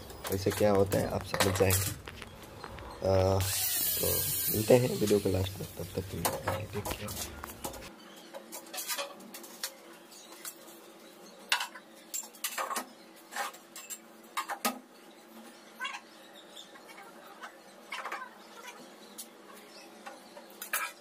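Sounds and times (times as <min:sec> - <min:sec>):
tools and metal hardware clinking: 0:00.0 - 0:05.2.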